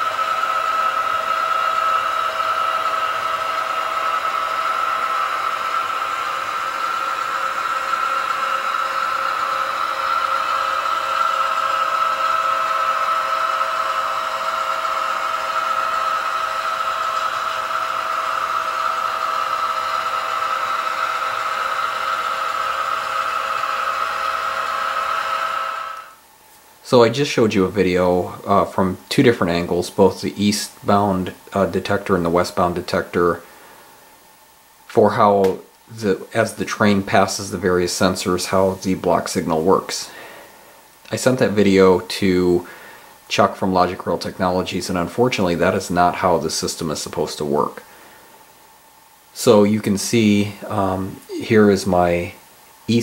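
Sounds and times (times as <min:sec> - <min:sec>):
model train whirring: 0:00.0 - 0:26.2.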